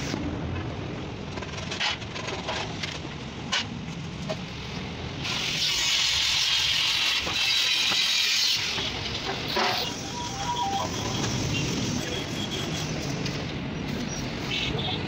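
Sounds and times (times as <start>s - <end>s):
sheet metal sliding rasping hiss: 5.2s - 10.2s.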